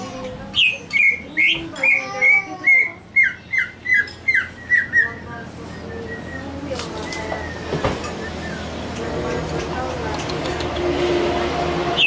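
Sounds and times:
bird calling sharp notes: 0.5 - 8.9.

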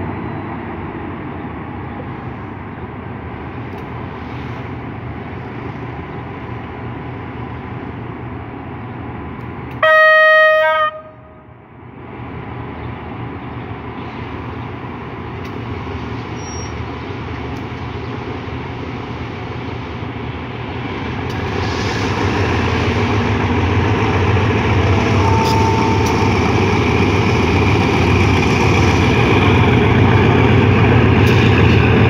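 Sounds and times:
locomotive engine and wheels rumbling: 0.0 - 32.0
train coaches rolling past: 0.0 - 32.0
locomotive air horn blast: 9.8 - 11.5, 24.9 - 26.5.

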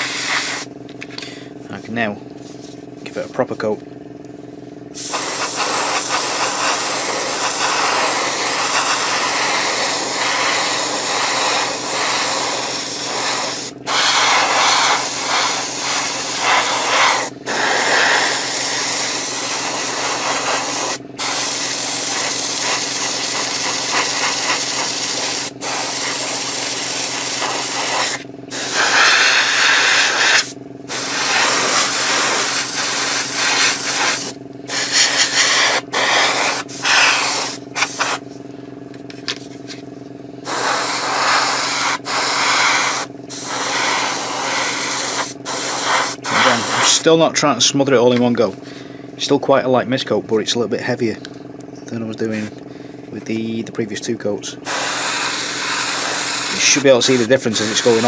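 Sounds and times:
airbrush air hiss: 0.0 - 0.7, 5.0 - 38.2, 40.4 - 47.1, 54.6 - 58.0
steady low hum: 0.0 - 58.0.

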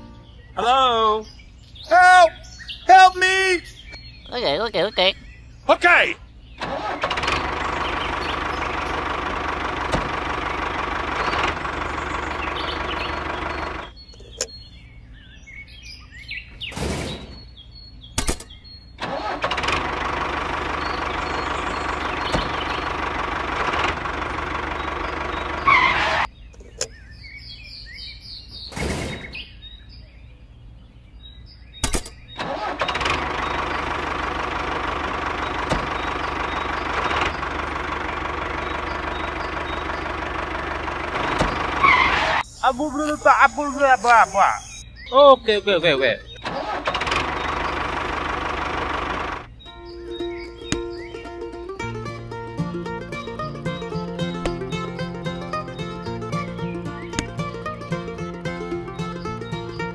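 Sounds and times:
birds chirping: 0.0 - 59.9
motor running: 6.7 - 13.9, 19.0 - 26.3, 32.6 - 44.8, 46.8 - 49.5
sharp knocks: 35.6 - 36.2, 54.2 - 54.9, 57.1 - 57.7.

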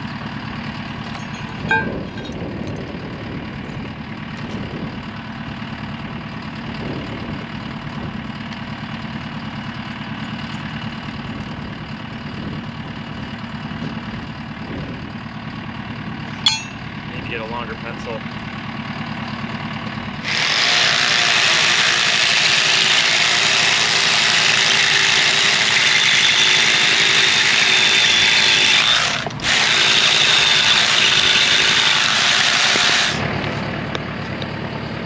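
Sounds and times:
drill boring into concrete: 20.2 - 33.2.

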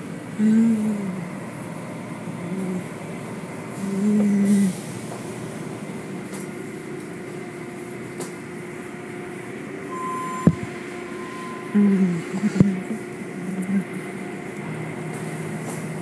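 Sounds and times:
car wash machinery rush: 0.0 - 16.0
steady high tone: 9.9 - 13.1.

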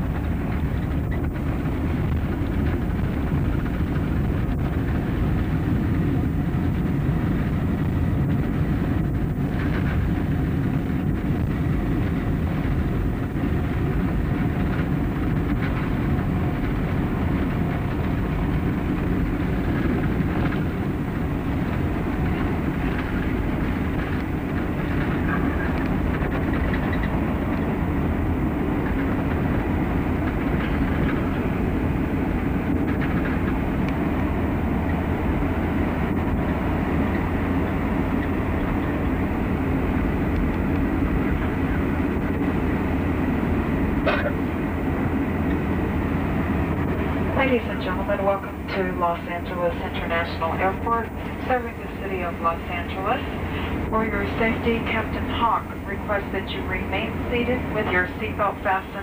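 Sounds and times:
airliner cabin rumble: 0.0 - 59.0.

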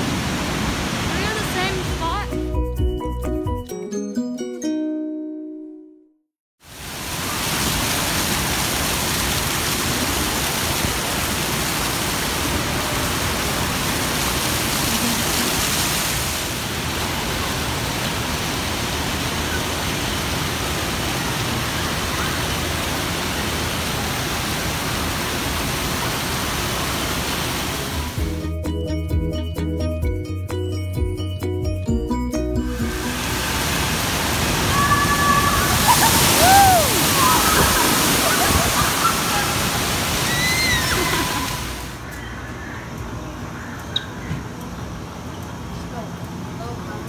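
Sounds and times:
fountain water splashing: 0.0 - 2.3, 6.6 - 28.2, 32.8 - 42.0
music: 2.0 - 6.2, 28.2 - 33.4.

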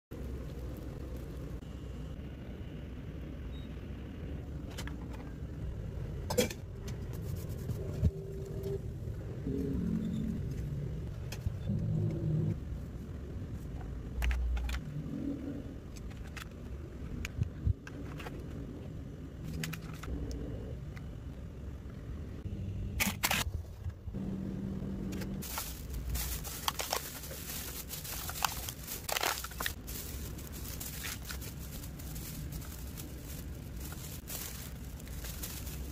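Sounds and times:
plastic gloves crackling: 0.1 - 1.6, 25.4 - 35.9
low background rumble: 0.1 - 35.9.

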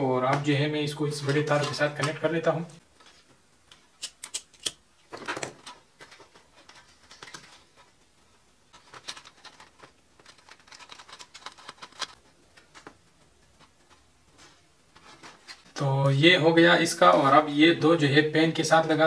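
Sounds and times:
wires rustling and clicking: 1.2 - 16.2.

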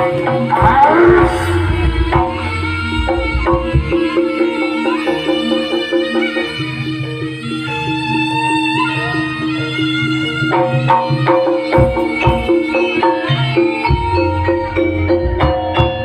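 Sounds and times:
quick percussion strikes: 0.0 - 5.4
high held melody line: 0.0 - 16.0
deep drum hits: 0.6 - 4.4.

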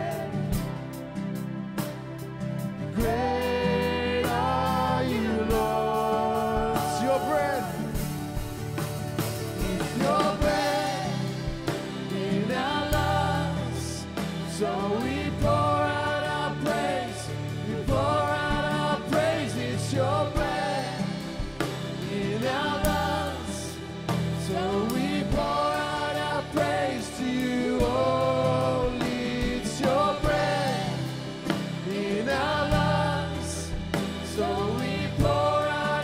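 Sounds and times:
sung vocals: 0.0 - 1.6, 2.7 - 36.0
drums: 0.0 - 36.0
worship band playing: 0.0 - 36.0.

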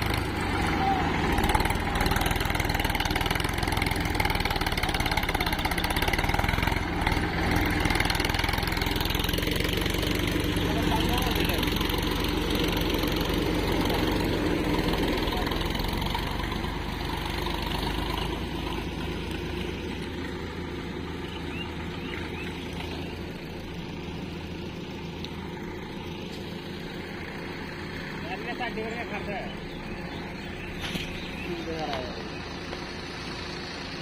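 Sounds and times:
tractor diesel engine running: 0.0 - 34.0.

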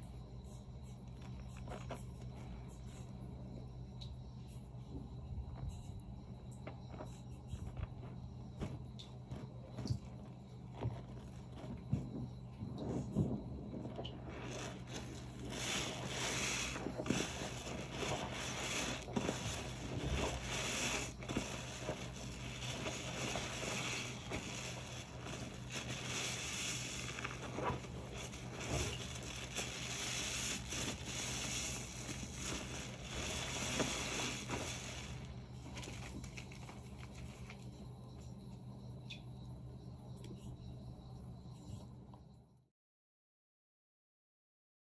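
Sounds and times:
soapy sponge squishing: 12.8 - 37.6.

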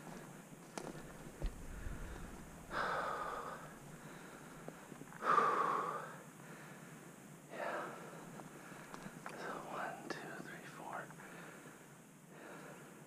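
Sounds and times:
person breathing heavily: 1.6 - 10.0, 11.2 - 13.0.

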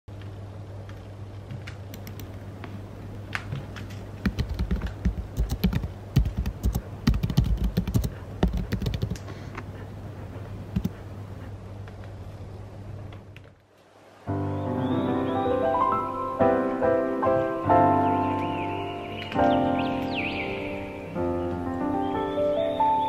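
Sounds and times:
steady low hum: 0.1 - 14.8
typing on computer keyboard: 4.2 - 9.3.

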